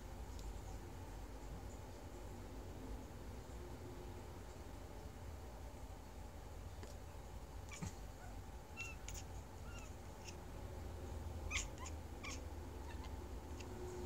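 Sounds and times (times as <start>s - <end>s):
kitten chattering: 8.7s - 10.4s, 11.5s - 13.8s.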